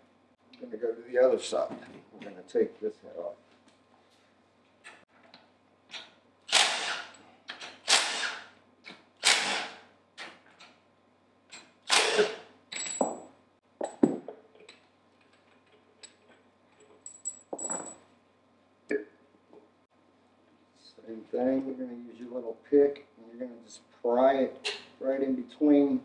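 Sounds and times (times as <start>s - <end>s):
impact wrench bursts: 6.5s - 7.2s, 7.8s - 8.5s, 9.2s - 9.9s, 11.8s - 12.5s.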